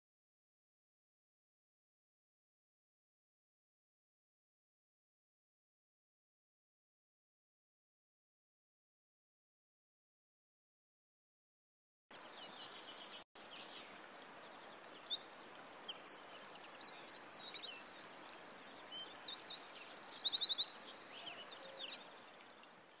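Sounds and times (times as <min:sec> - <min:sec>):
faint steady hiss: 0:12.1 - 0:23.0
songbirds trilling and chirping: 0:12.1 - 0:23.0.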